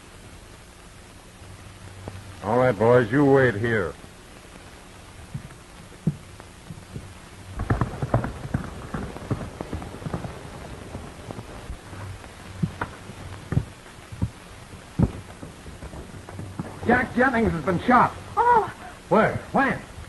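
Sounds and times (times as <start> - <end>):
film soundtrack hiss and hum: 0.0 - 20.0
galloping horse hoofbeats: 5.3 - 17.8.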